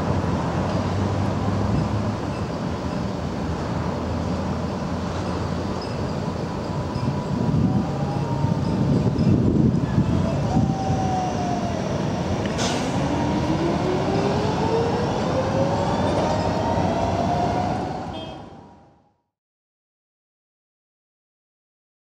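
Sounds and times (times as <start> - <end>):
tram traction whine rising: 0.0 - 19.2
road traffic rumble: 0.0 - 19.3.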